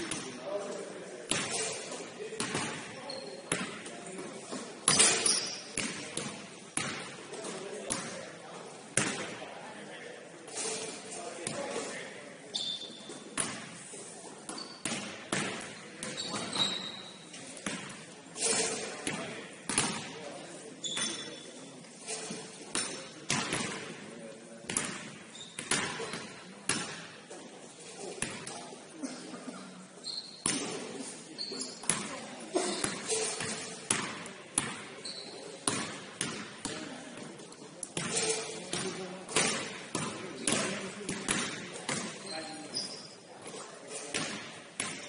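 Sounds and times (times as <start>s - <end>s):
sneaker squeaks: 1.3s - 3.8s, 4.8s - 5.9s, 12.5s - 13.3s, 14.4s - 17.8s, 20.6s - 23.1s, 25.3s - 26.4s, 30.0s - 34.0s, 34.7s - 35.8s, 41.9s - 44.2s
basketball bouncing on court floor: 2.4s - 2.8s, 3.5s - 3.8s, 4.9s - 7.1s, 14.5s - 17.0s, 19.0s - 20.1s, 24.7s - 27.1s, 32.8s - 36.8s, 37.9s - 42.2s.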